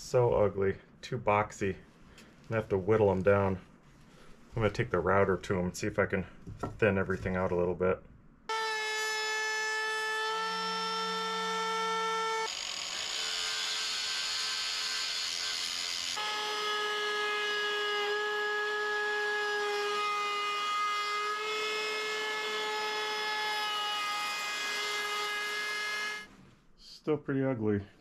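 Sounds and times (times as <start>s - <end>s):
router whining: 8.5s - 26.3s.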